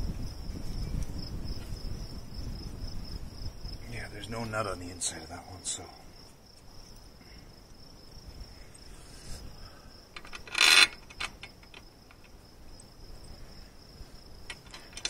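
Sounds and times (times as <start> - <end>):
insect trill: 0.0 - 15.0
metallic rattle: 10.2 - 12.4, 14.5 - 15.0
light metal clicks: 14.5 - 15.0.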